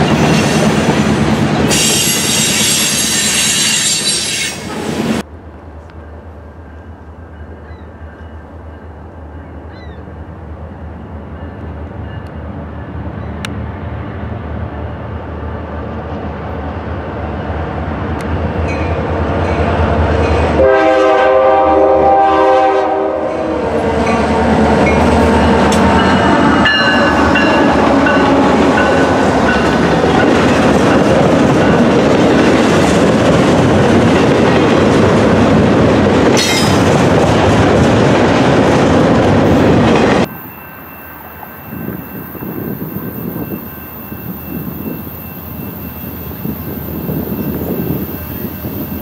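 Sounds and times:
diesel locomotive engine rumbling: 0:00.0 - 0:49.0
locomotive air horn: 0:01.7 - 0:04.9, 0:20.5 - 0:24.5.

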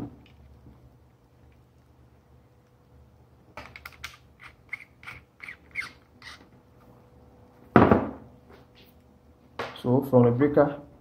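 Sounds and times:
loud thump: 0:07.7 - 0:08.2.

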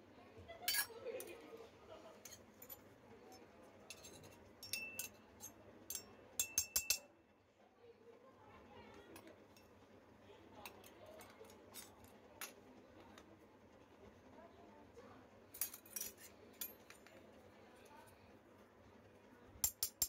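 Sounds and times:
metal utensils clinking: 0:00.6 - 0:01.4, 0:02.2 - 0:07.0, 0:10.6 - 0:12.6, 0:15.6 - 0:17.2.

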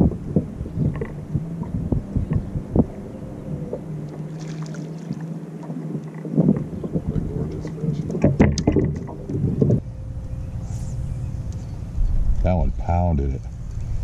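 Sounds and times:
wind rumble on microphone: 0:00.0 - 0:14.0
fish splashing: 0:03.8 - 0:06.5
small knocks: 0:08.0 - 0:09.8.

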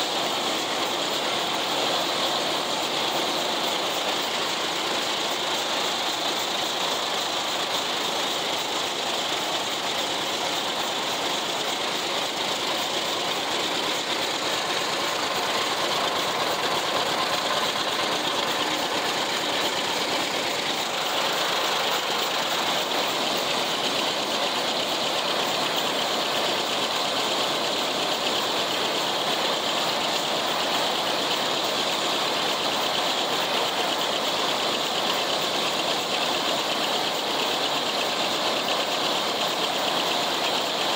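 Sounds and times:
mower mechanism rattling: 0:00.0 - 0:31.3
tractor engine running: 0:00.0 - 0:40.9.

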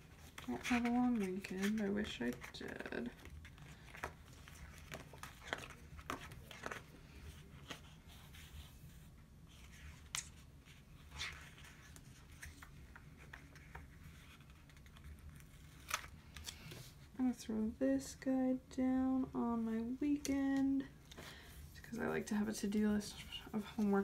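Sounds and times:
paper rustling: 0:00.0 - 0:17.1
faint low hum: 0:00.0 - 0:24.0.

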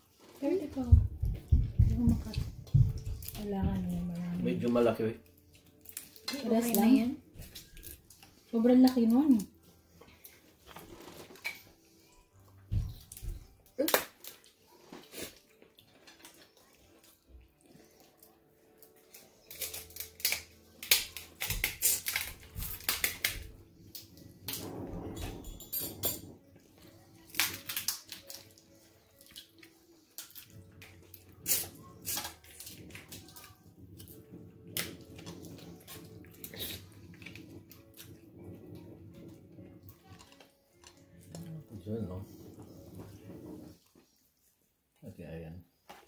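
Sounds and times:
crab shells cracking: 0:05.2 - 0:06.9, 0:19.0 - 0:24.6, 0:27.2 - 0:34.2
dishes clinking: 0:24.6 - 0:26.6.

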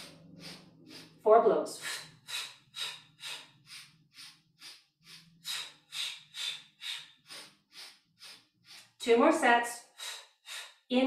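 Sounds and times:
woman's short sharp breaths: 0:00.0 - 0:01.2, 0:01.8 - 0:09.0.

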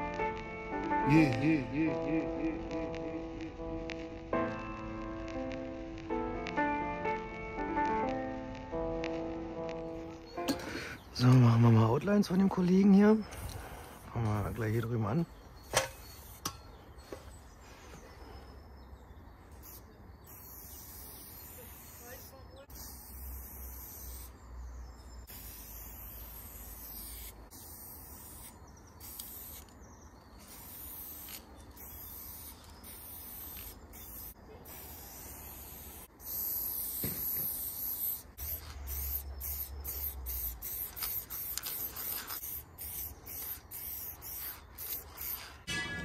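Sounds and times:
spray paint can hissing: 0:00.0 - 0:10.6, 0:16.0 - 0:16.5, 0:19.6 - 0:24.4, 0:25.2 - 0:29.8, 0:30.4 - 0:45.7.

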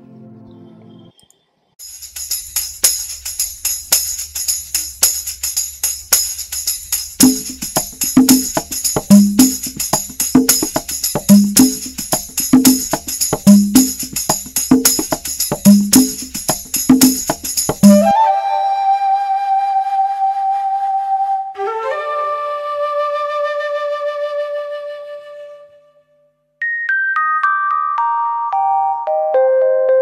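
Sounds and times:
jingling hand percussion: 0:01.8 - 0:18.2
low drum beat: 0:07.2 - 0:18.1.

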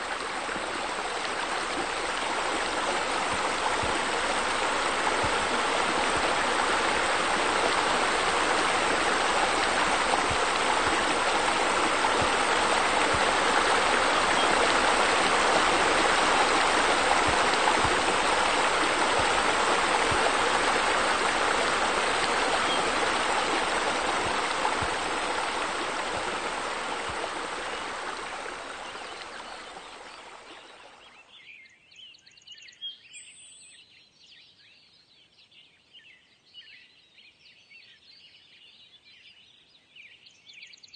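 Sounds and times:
rushing splashing water: 0:00.0 - 0:31.1.

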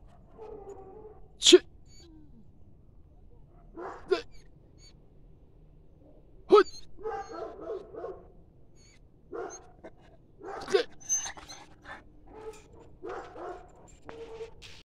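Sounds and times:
dog barking: 0:00.0 - 0:01.6, 0:03.3 - 0:04.4, 0:06.7 - 0:08.4, 0:09.3 - 0:14.6.

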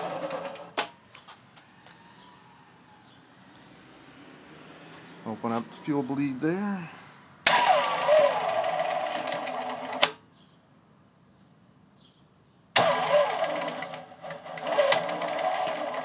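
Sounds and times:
diesel engine cranking: 0:00.0 - 0:00.9, 0:07.4 - 0:10.2, 0:12.8 - 0:16.0
starter click: 0:14.6 - 0:15.8.

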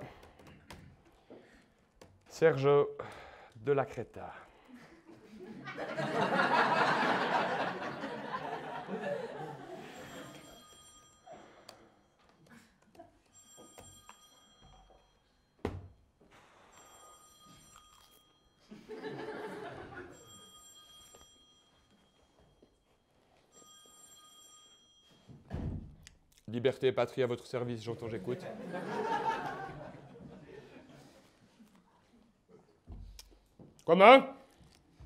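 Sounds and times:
phone ringtone: 0:06.4 - 0:12.4, 0:13.3 - 0:15.6, 0:16.6 - 0:25.4.

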